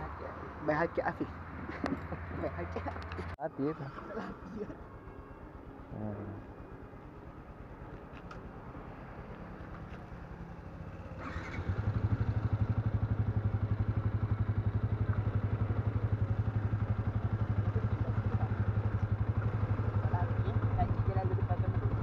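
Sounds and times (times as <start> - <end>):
motorcycle idling quietly: 3.9 - 22.0
motorcycle engine starting and idling: 5.5 - 22.0.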